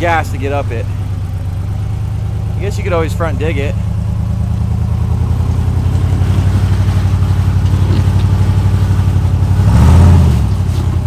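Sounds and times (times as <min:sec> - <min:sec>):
buggy engine pulling at low revs: 0:00.0 - 0:11.0.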